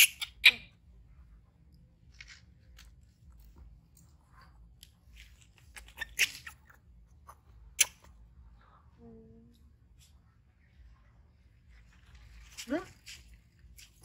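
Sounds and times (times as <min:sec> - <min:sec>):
crackly noises: 0:01.2 - 0:08.2, 0:11.6 - 0:14.0.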